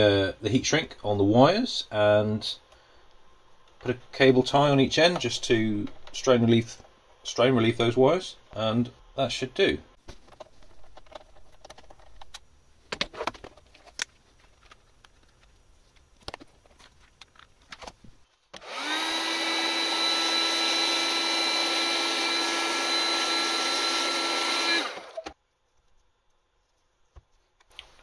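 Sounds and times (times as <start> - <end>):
heat gun fan whining: 18.5 - 25.4.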